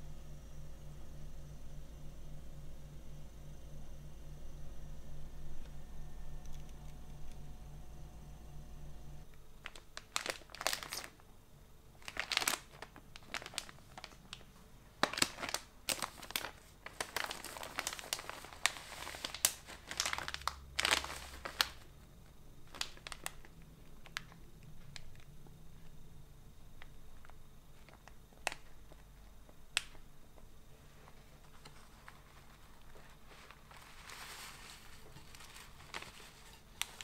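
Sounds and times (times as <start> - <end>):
plastic snack packet crinkling: 9.2 - 11.2, 12.0 - 25.3, 26.8 - 30.0, 31.4 - 37.0.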